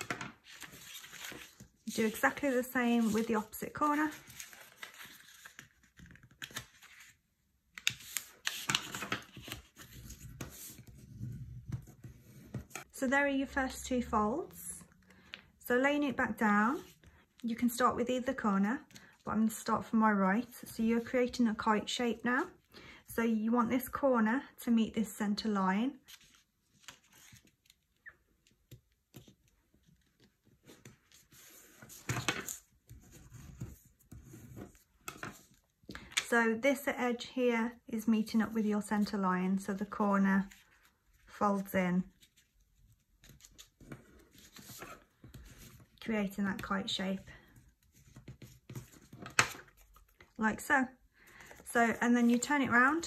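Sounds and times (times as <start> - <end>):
paper rustling: 0.0 - 7.2, 7.8 - 11.1, 41.6 - 46.0
paper folding and rustling: 0.0 - 12.9, 26.0 - 28.0, 28.8 - 36.2, 40.4 - 46.0, 47.4 - 50.4.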